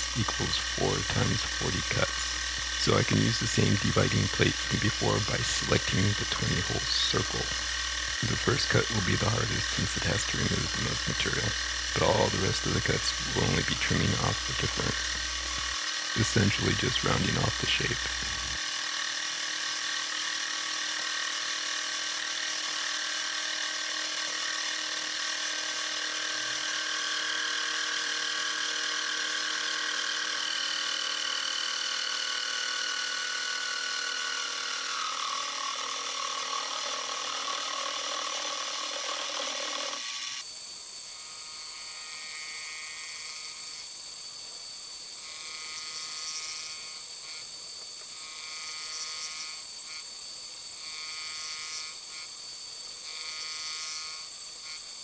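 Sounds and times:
milling machine whine: 0.0 - 40.5.

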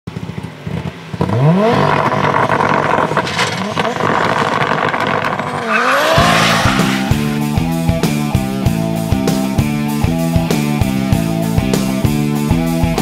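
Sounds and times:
exhaust crackles: 0.1 - 8.9
race car engine revving: 0.6 - 9.3
tyres spinning: 3.1 - 7.6
rock music: 5.7 - 13.0.

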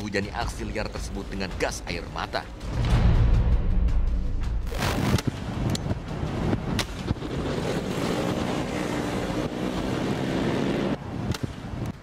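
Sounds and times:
road noise: 4.3 - 12.0.

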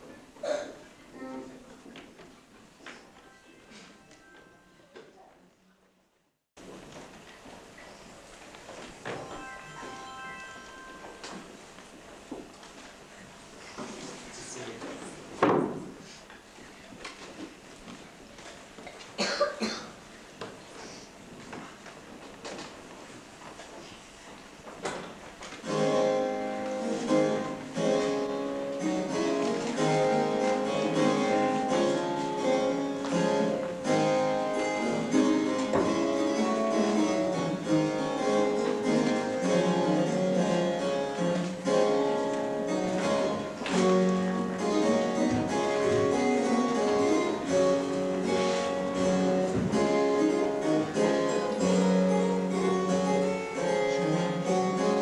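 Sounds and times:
instrumental music quick notes: 9.2 - 11.5.

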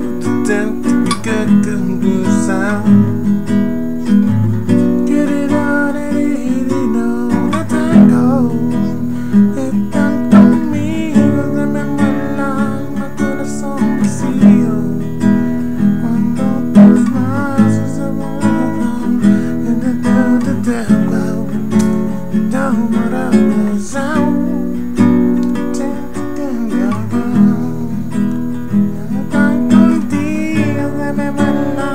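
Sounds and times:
classical guitar strumming: 0.0 - 31.9
man humming: 5.0 - 15.0, 25.4 - 31.9.

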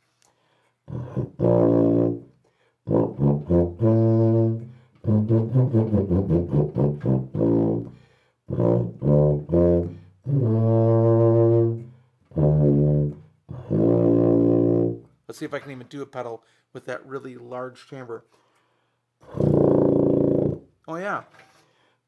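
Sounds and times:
tuba playing low notes: 0.9 - 15.1, 19.2 - 20.7.

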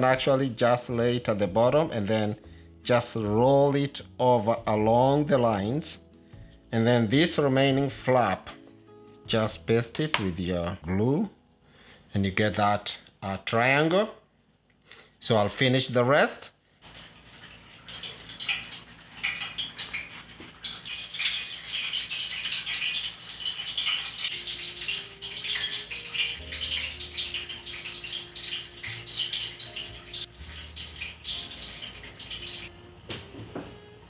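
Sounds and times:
oil trickling into frying pan: 16.8 - 32.7.

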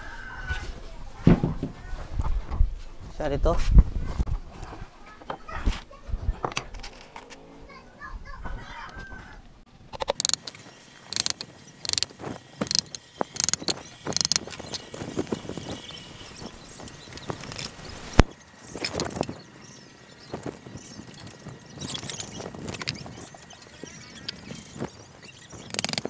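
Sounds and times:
sharp click: 9.9 - 14.8.

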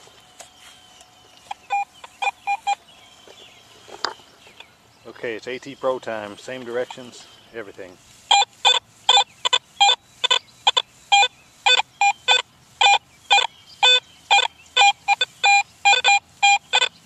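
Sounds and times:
metal detector beeping: 0.4 - 2.8, 8.3 - 17.0.

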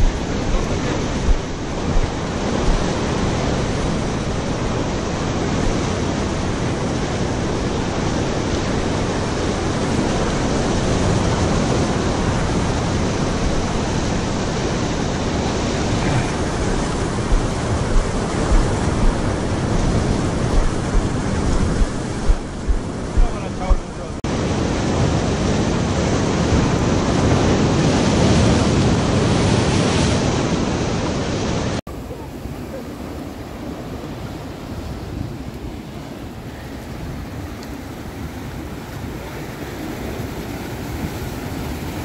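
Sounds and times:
surf breaking over rocks: 0.0 - 42.0
wind buffeting microphone: 0.0 - 42.0
short low bumps: 16.0 - 23.9.

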